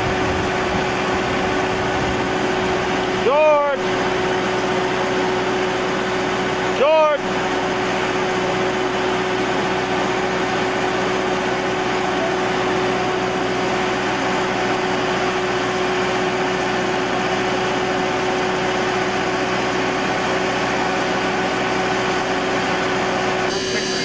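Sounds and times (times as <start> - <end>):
constant whine: 0.0 - 24.0
steam locomotive hissing: 23.4 - 24.0.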